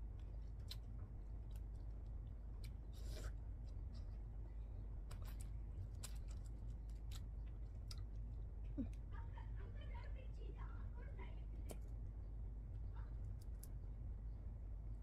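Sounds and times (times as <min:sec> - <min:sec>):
low steady hum: 0:00.0 - 0:15.0
fried shrimp crackling and crunching: 0:05.0 - 0:08.2.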